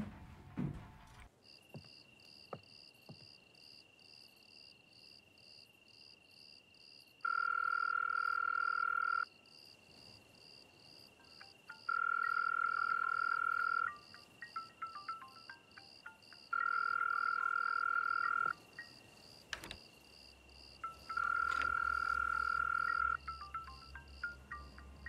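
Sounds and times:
crickets chirping: 0:01.4 - 0:25.0
telephone ringback tone: 0:11.7 - 0:19.0, 0:20.8 - 0:25.0.

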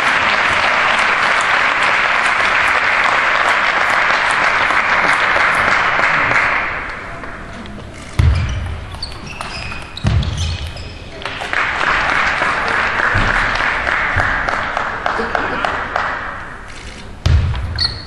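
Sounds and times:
audience applauding: 0:00.0 - 0:07.2, 0:11.2 - 0:16.6.

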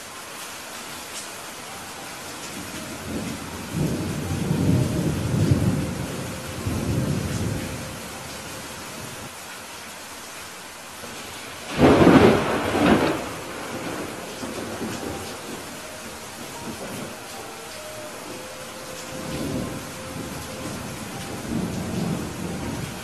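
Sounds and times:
rain hiss: 0:00.0 - 0:23.0
thunder rumbling: 0:02.6 - 0:09.2, 0:11.1 - 0:23.0
loud thunderclap: 0:11.7 - 0:15.7.

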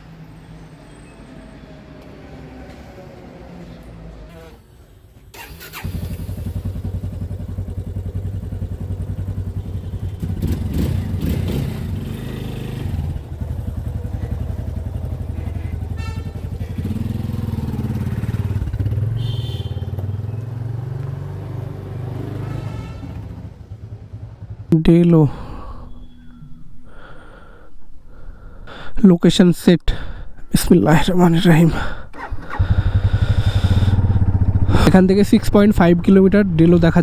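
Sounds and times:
motorcycle engine revving: 0:05.3 - 0:24.7, 0:32.2 - 0:37.0.

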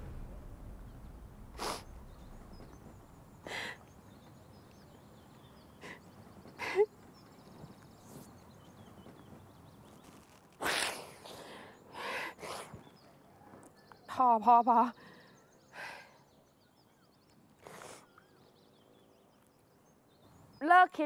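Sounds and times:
woman sobbing: 0:06.6 - 0:06.9.

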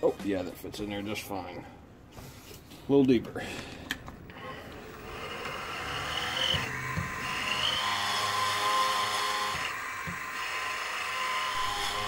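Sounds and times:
milling machine motor whine: 0:04.3 - 0:12.0.

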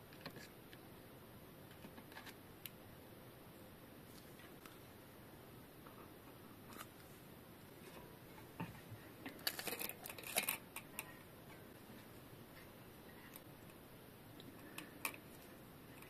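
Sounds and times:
small metal clicks and rattles: 0:09.2 - 0:11.1, 0:14.6 - 0:15.3.

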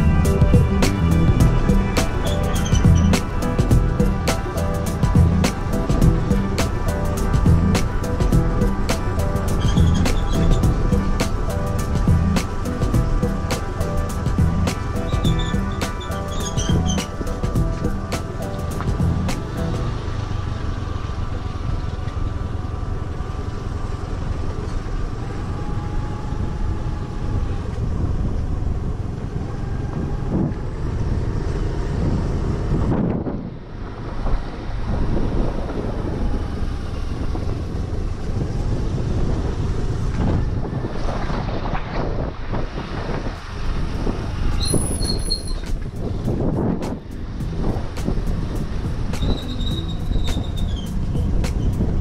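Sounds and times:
scooter engine and road rumble: 0:00.0 - 0:52.0.

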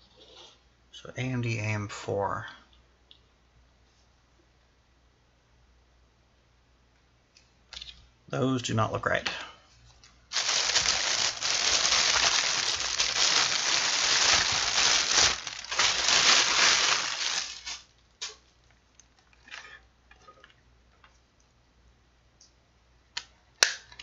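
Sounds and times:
plastic packaging crinkling: 0:10.3 - 0:18.3.

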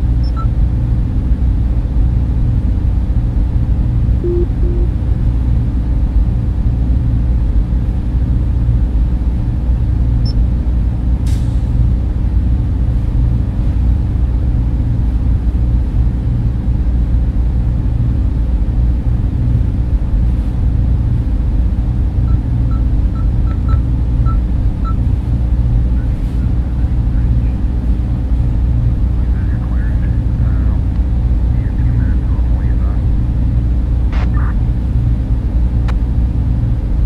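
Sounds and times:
low rumbling spaceship drone: 0:00.0 - 0:37.0
faint short blips: 0:04.2 - 0:05.0.

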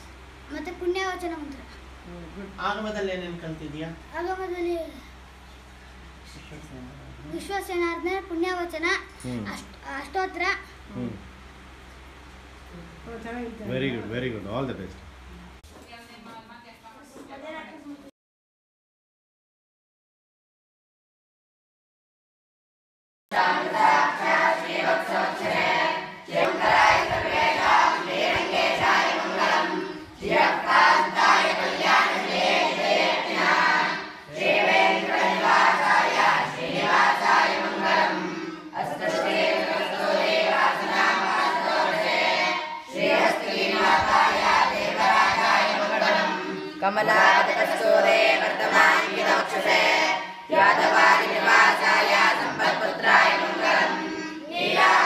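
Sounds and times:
boys singing a hymn: 0:23.3 - 0:55.0.

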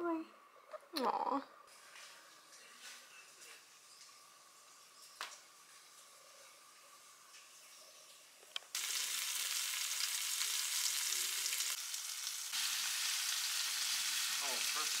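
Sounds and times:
food sizzling in a frying pan: 0:03.5 - 0:15.0.

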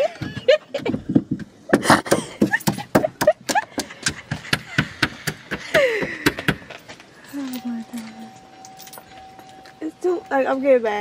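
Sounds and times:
sharp knocks and taps: 0:00.2 - 0:06.8.

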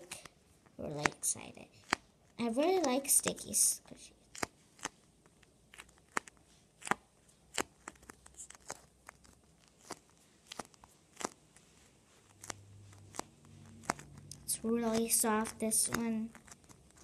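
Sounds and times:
foam squishy crackling: 0:04.3 - 0:17.0.

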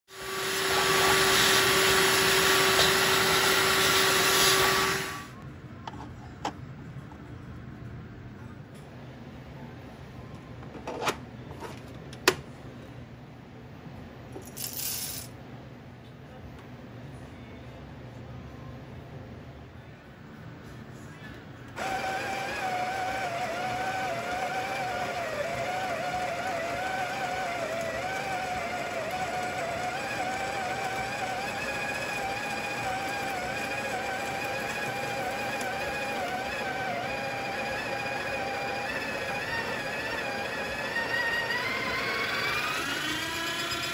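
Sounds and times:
coffee grinder motor whining: 0:00.1 - 0:05.3, 0:21.8 - 0:43.9.

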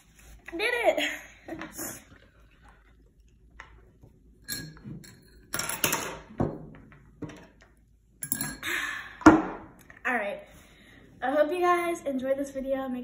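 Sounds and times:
cup knocks and clinks on table: 0:04.5 - 0:07.5.

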